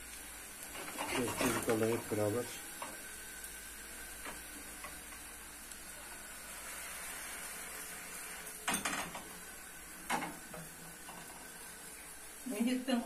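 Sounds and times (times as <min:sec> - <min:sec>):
faint steady hiss: 0:00.0 - 0:13.0
spatula scraping a frying pan: 0:00.7 - 0:01.9.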